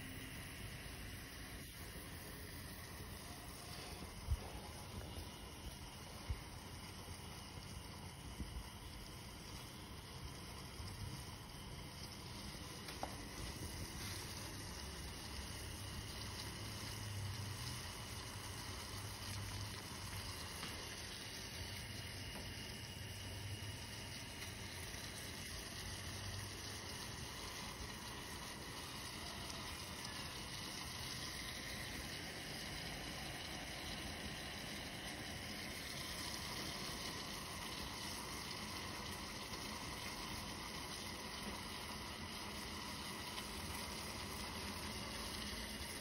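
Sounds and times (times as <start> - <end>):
gas stove burner rumble and hiss: 0.0 - 46.0.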